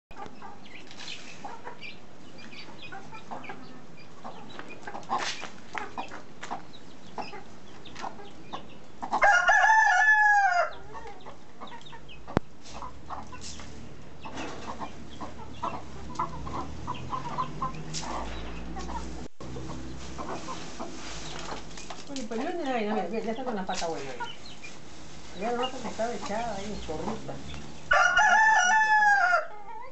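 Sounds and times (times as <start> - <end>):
rooster crowing: 9.2 - 10.8, 27.9 - 29.9
hens clucking softly: 14.2 - 21.7.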